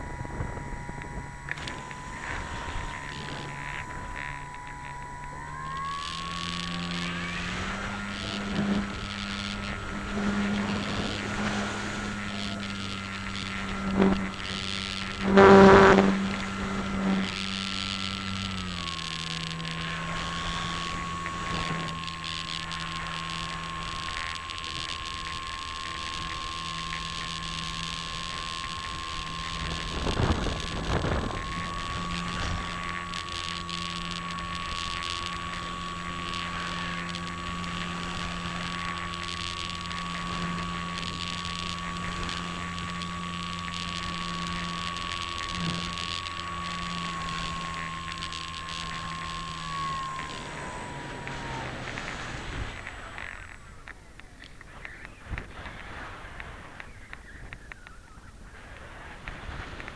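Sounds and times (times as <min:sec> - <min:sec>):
wind rushing over microphone: 0:00.0 - 0:22.8
electric motor and propeller whine: 0:00.0 - 0:59.9.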